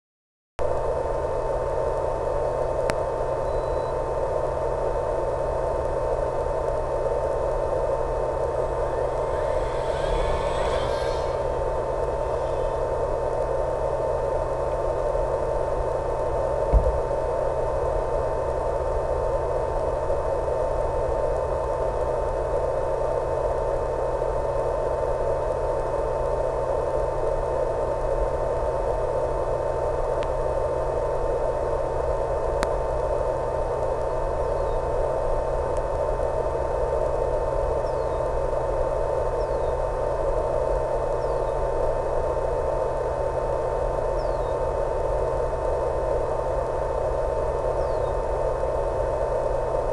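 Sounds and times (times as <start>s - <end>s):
low hum: 0.6s - 49.9s
static hiss: 5.5s - 14.8s
constant high tone: 7.2s - 14.2s
thump: 16.7s - 17.0s.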